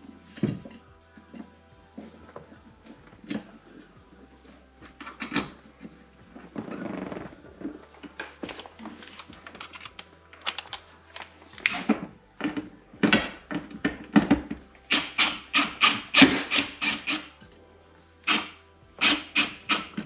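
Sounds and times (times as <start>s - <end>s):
small parts and tools handled: 8.0s - 17.2s
cordless drill driving screws: 14.9s - 17.3s.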